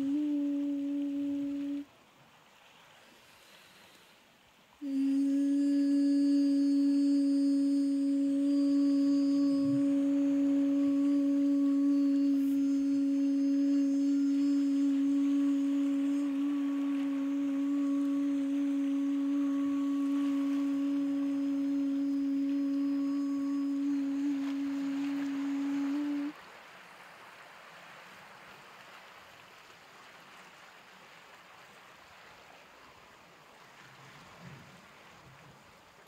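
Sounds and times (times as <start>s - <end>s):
steady low pure tone: 0.0s - 1.9s, 4.8s - 26.3s.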